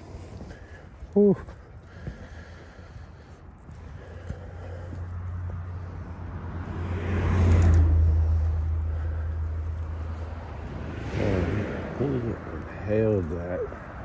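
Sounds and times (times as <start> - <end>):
car driving past: 4.8 - 14.0.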